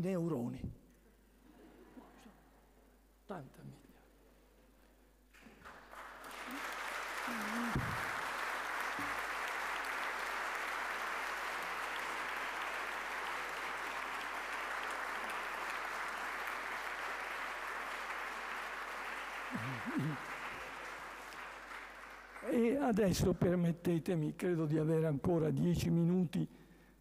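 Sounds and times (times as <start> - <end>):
audience applauding: 5.4 - 23.2.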